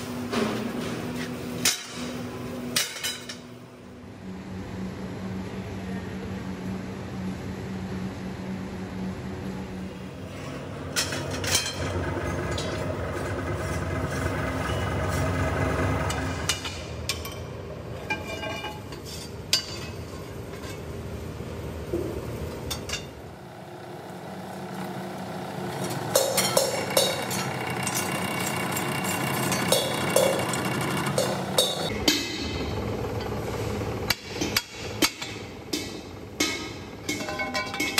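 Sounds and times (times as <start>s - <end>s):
power press humming: 23.2s - 37.0s.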